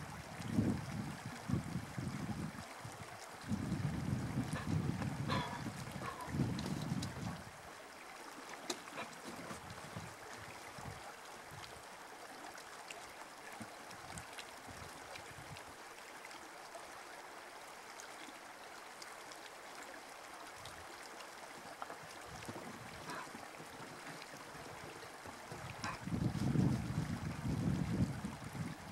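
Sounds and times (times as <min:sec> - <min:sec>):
wind rumble on microphone: 0:00.0 - 0:07.5, 0:09.0 - 0:11.8, 0:14.0 - 0:15.7, 0:22.2 - 0:28.9
river water rushing: 0:02.6 - 0:28.9.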